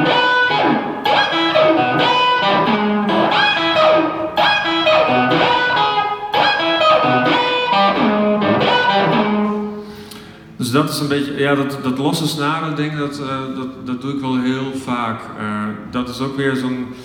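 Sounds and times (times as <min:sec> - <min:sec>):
electric guitar riff with whammy bends: 0:00.0 - 0:10.6.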